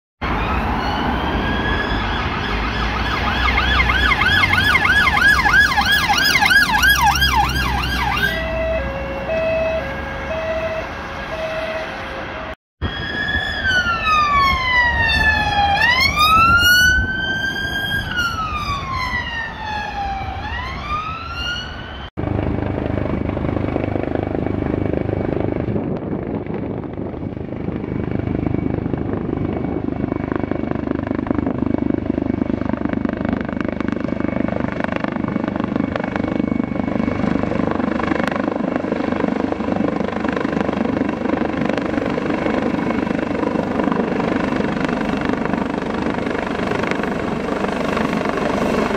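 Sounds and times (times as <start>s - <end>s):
siren wailing: 0.2s - 31.6s, 32.6s - 48.9s
helicopter overhead: 0.2s - 48.9s.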